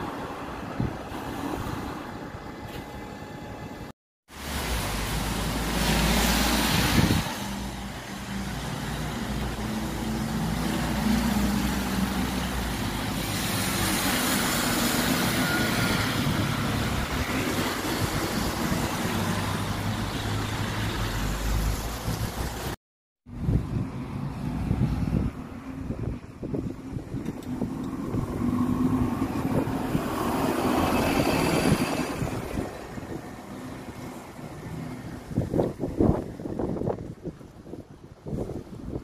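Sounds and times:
tyres hissing on wet road: 4.3 - 22.8, 27.6 - 35.9.

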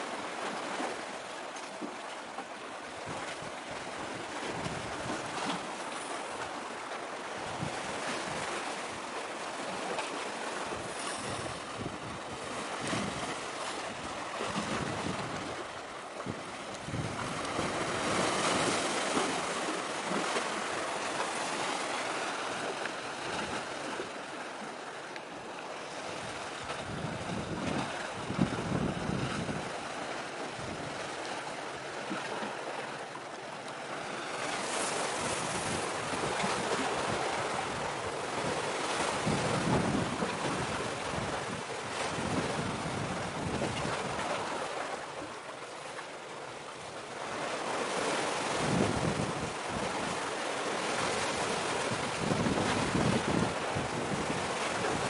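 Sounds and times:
sea waves washing: 0.0 - 55.0
wind gusting on microphone: 10.7 - 19.4, 26.0 - 29.8, 34.9 - 44.5, 48.4 - 50.3, 51.0 - 55.0.

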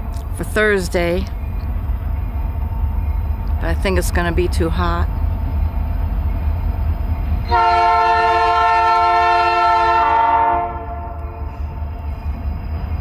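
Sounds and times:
steady low rumble: 0.0 - 7.5
locomotive air horn chord: 7.5 - 11.8.

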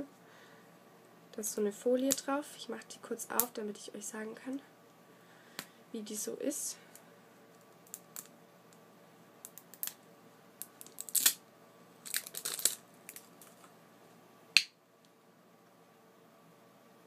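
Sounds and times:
plastic foil crinkling: 10.8 - 11.4, 12.0 - 13.7.

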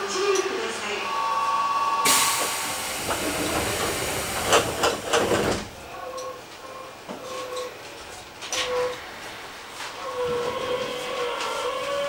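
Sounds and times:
compressed air hissing: 2.1 - 5.3.

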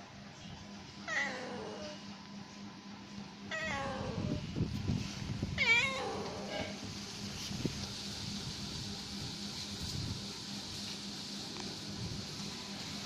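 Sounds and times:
cat meowing: 1.0 - 2.0, 3.5 - 4.4, 5.6 - 6.7.

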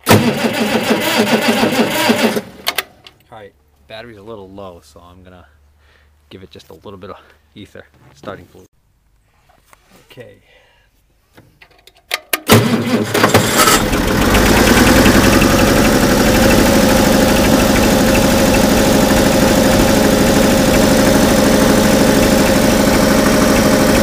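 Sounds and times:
tractor engine cranking and idling: 0.0 - 3.9, 11.6 - 24.0.

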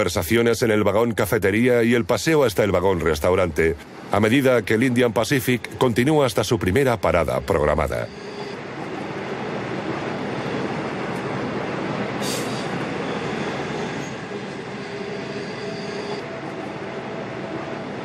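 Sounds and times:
train carriages rumbling and rattling: 0.0 - 18.0
high-pitched wheel squeal: 7.2 - 9.2, 12.2 - 17.5
brief hiss: 12.2 - 12.8.

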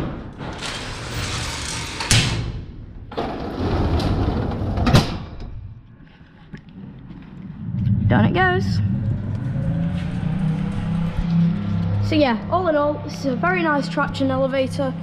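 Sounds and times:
door sliding shut with bang: 0.0 - 5.4
metal gate sliding and clanging: 0.0 - 5.5.

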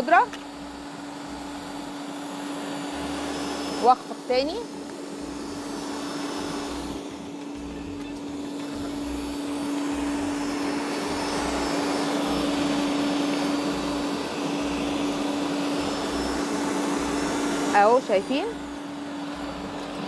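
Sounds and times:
stand mixer motor hum: 0.0 - 20.0.

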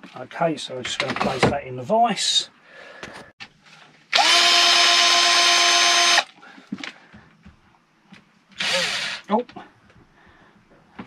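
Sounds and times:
cordless drill spinning: 4.1 - 6.3, 8.6 - 9.3.

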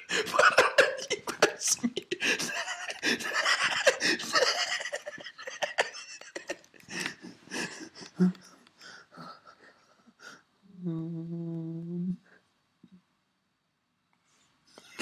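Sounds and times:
breathy gasping laughter: 0.0 - 10.4.

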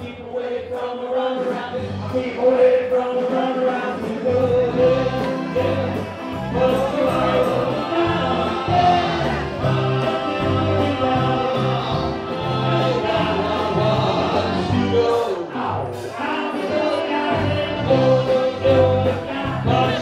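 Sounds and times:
choir-like vocal harmonies: 0.0 - 20.0
bass line: 4.0 - 20.0.

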